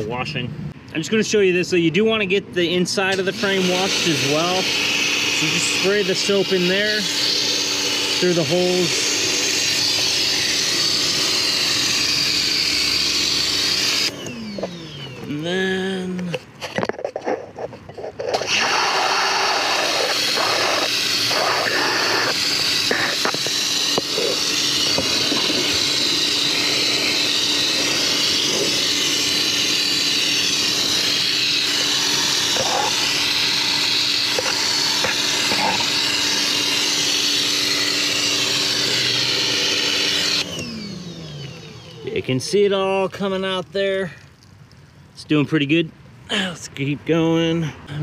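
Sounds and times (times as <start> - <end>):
pressure washer hum: 2.8 - 16.2, 18.2 - 44.5
pressure washer spray hissing: 3.1 - 14.1, 18.4 - 40.4.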